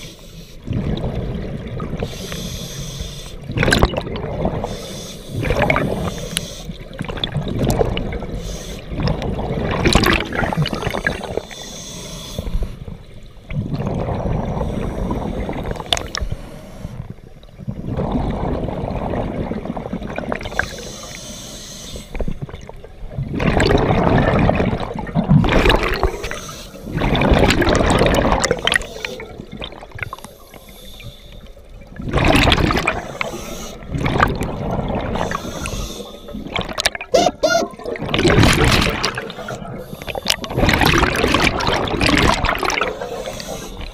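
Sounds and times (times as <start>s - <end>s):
exhaled bubbles gurgling: 0.0s - 11.7s, 12.4s - 20.9s, 22.1s - 43.9s
regulator inhalations: 2.1s - 3.4s, 4.7s - 6.8s, 8.4s - 8.8s, 11.0s - 12.8s, 20.6s - 22.2s, 26.1s - 27.0s, 30.1s - 31.6s, 33.0s - 33.9s, 35.2s - 36.5s, 39.3s - 40.6s, 42.9s - 43.9s.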